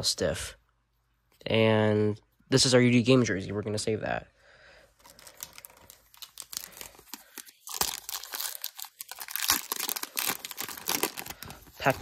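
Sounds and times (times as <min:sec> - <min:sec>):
foil wrapper crinkling and tearing: 0:05.0 - 0:12.0.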